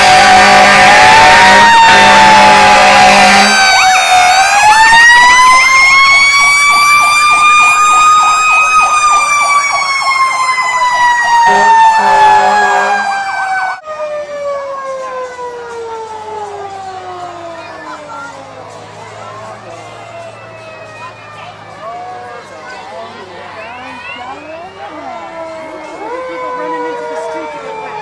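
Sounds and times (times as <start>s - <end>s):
horn blaring: 0.0s - 6.0s, 11.3s - 13.8s
fast warbling siren: 0.0s - 18.2s, 23.6s - 28.0s
fire engine siren wailing: 0.0s - 28.0s.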